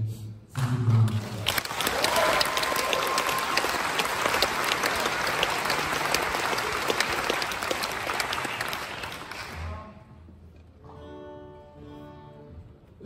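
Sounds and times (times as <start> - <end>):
audience applauding: 1.1 - 9.7.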